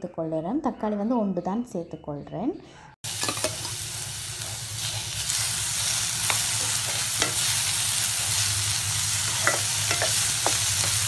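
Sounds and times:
vegetables sizzling in hot oil: 0:03.0 - 0:11.0.

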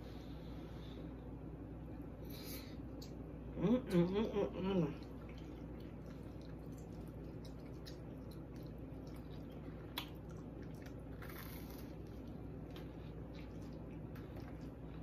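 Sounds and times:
person chewing wetly: 0:05.0 - 0:15.0.

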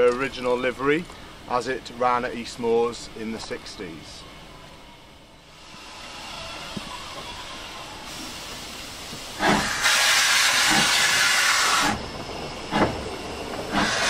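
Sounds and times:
steam hissing: 0:05.5 - 0:14.0
steam locomotive exhaust chuffs: 0:05.5 - 0:14.0.

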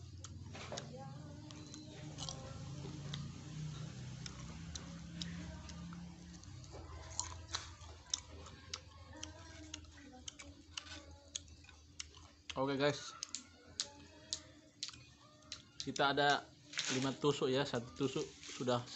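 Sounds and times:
chewing with mouth clicks: 0:00.0 - 0:16.5.

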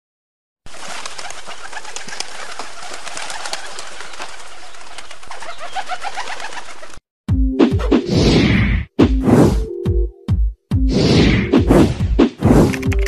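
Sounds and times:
pigeons chirping and squeaking: 0:00.7 - 0:07.0.

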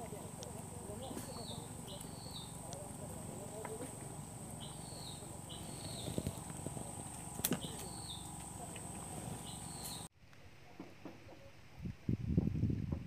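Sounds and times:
high insect drone: 0:00.0 - 0:10.1
short chirping call: 0:01.0 - 0:02.6, 0:04.6 - 0:06.4, 0:07.5 - 0:08.4, 0:09.4 - 0:10.1
sharp clicks: 0:05.8 - 0:09.0.

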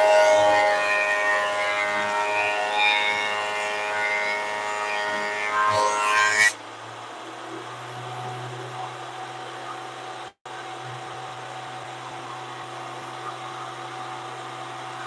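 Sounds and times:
thickness planer running: 0:00.0 - 0:06.6.

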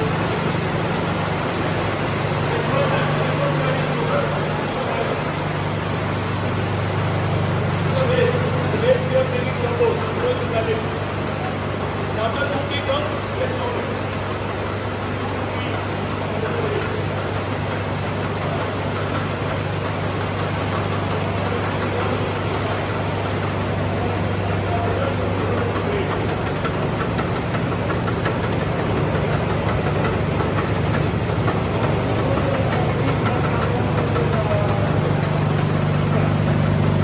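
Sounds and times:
machine motor humming: 0:00.0 - 0:37.0.

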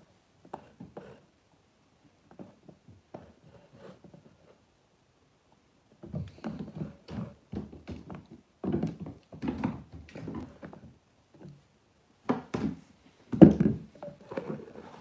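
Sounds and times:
kitten paws thumping on wooden floor: 0:06.0 - 0:10.9.

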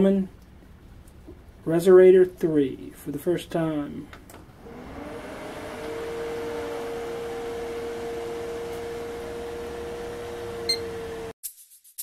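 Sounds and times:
computer cooling fans: 0:03.6 - 0:11.3.

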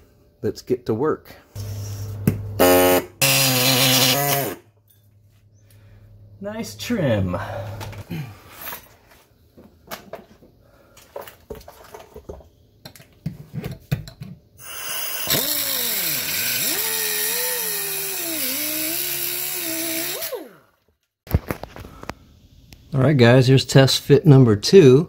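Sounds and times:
die grinder cutting metal: 0:02.6 - 0:04.6, 0:14.6 - 0:20.6.

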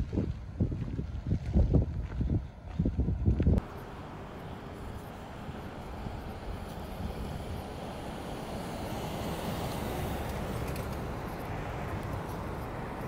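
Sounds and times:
passing vehicles rushing: 0:03.6 - 0:13.0.

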